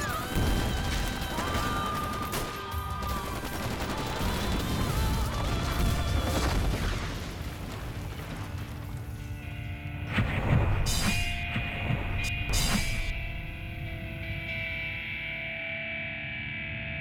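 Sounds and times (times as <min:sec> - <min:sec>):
dramatic trailer music: 0:09.2 - 0:16.2
sharp hit: 0:10.1 - 0:13.5.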